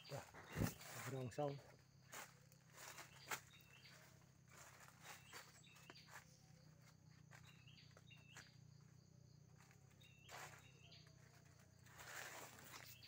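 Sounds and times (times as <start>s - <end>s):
footsteps on dry leaves: 0.0s - 13.0s.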